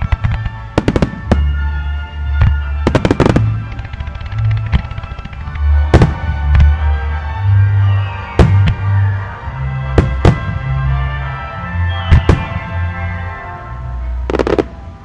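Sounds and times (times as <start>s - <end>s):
fireworks bursting: 0.0s - 6.9s, 7.5s - 9.1s, 9.9s - 10.7s, 11.9s - 12.8s, 14.3s - 14.9s
music with deep bass: 0.0s - 15.0s.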